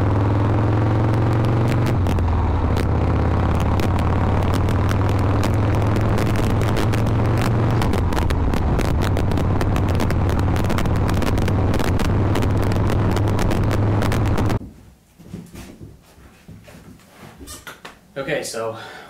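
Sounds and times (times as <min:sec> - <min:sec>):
motorcycle engine running: 0:00.0 - 0:14.6.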